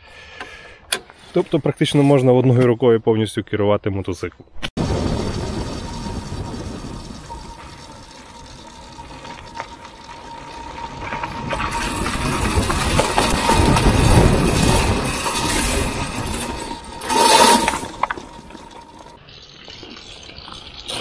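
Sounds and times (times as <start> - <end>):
stones spraying: 4.8 - 19.2
thin steady whine: 4.8 - 19.2
tyres crunching on gravel: 4.8 - 19.2.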